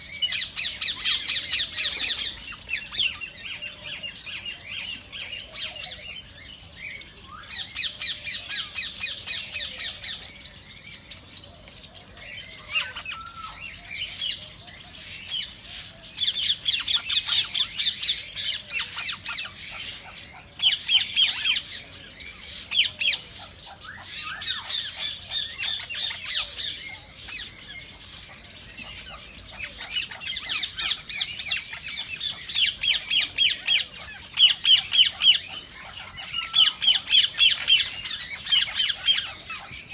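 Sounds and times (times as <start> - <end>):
parakeets squawking: 22.5 - 39.9.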